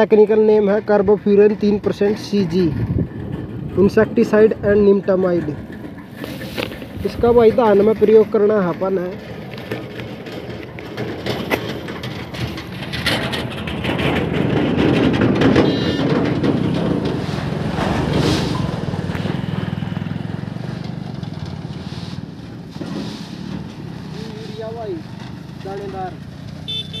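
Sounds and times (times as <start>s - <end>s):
vehicle engine passing by: 6.2s - 27.0s.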